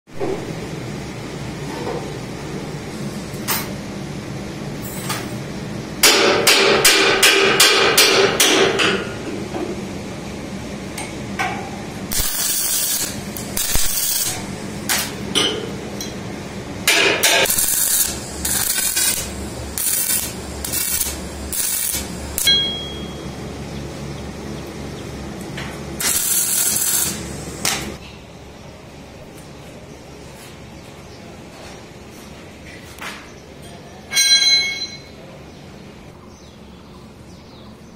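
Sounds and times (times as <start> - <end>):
hammer tapping metal: 6.0 - 9.2, 16.9 - 23.2
arc welding crackling hiss: 12.1 - 15.2, 16.9 - 22.6, 26.0 - 28.0.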